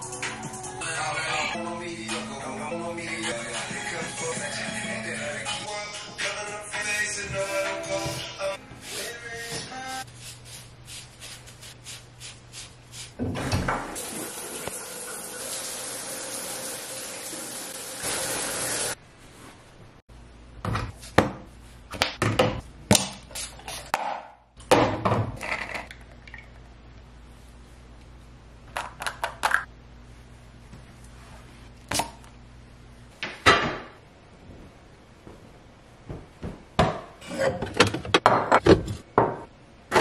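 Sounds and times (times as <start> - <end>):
dry brush scratching skin: 8.8 - 13.2
water running: 13.1 - 19.0.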